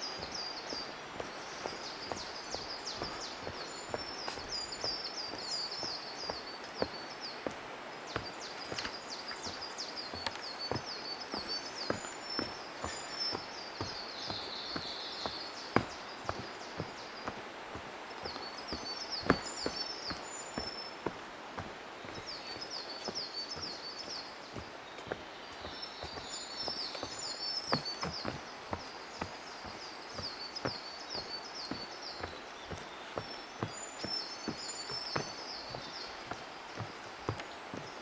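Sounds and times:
footsteps on wooden boardwalk: 0.0 - 38.0
songbird singing: 0.0 - 38.0.

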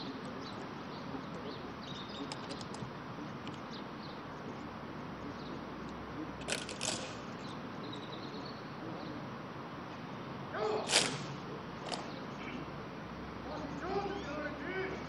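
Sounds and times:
open-air ceremony ambience: 0.0 - 15.0
rifles clacking in unison: 2.1 - 3.6, 6.4 - 7.3, 10.9 - 12.1.

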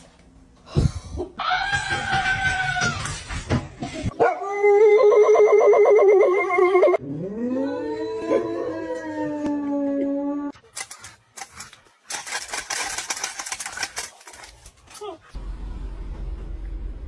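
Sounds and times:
dog howling: 4.2 - 10.6.

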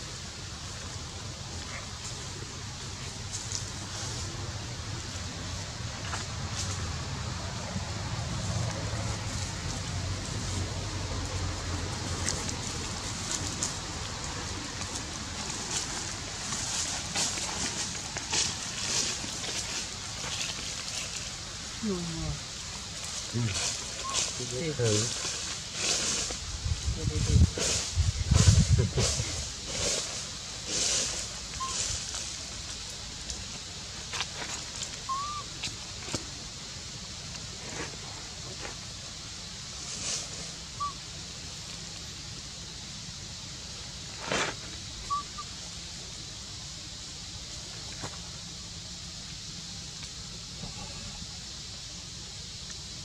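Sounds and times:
dry leaves rustling and crackling: 0.0 - 53.0
steady outdoor hiss: 0.0 - 53.0
footsteps crunching dry leaves: 8.0 - 21.8
high chirps: 35.1 - 35.5, 45.0 - 45.5.

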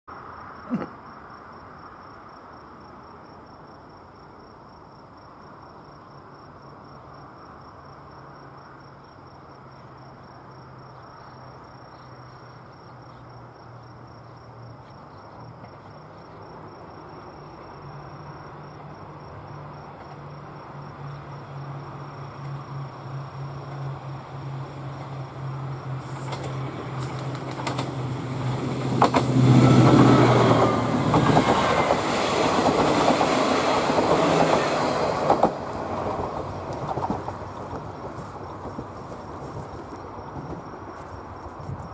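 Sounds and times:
diesel railcar engine hum: 5.3 - 41.9.

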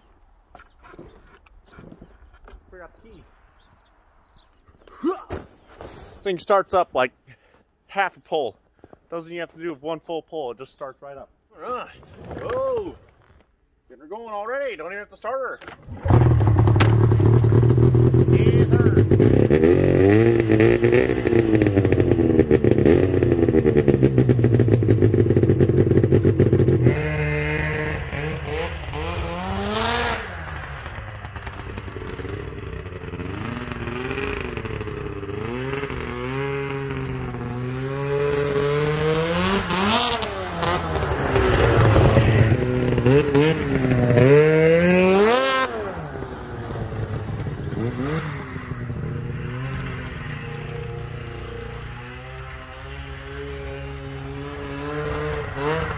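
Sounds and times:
snowmobile engine revving: 15.8 - 55.9.

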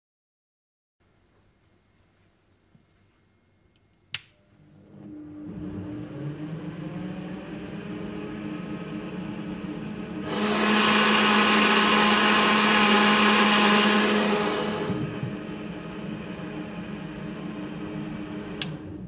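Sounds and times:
blender motor running: 4.9 - 18.8.

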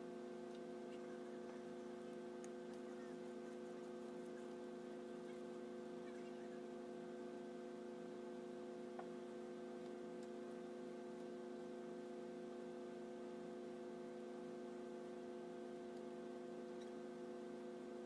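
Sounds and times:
faint electrical hum: 0.0 - 18.0.

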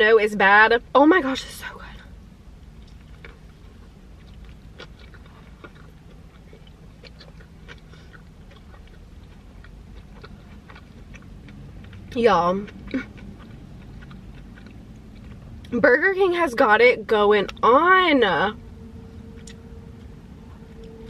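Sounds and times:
person chewing food: 2.8 - 15.7.

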